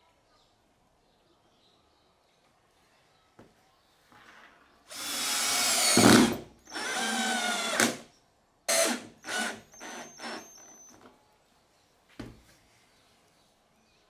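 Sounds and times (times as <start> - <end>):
cordless drill driving screws: 4.9 - 8.1, 8.7 - 11.0.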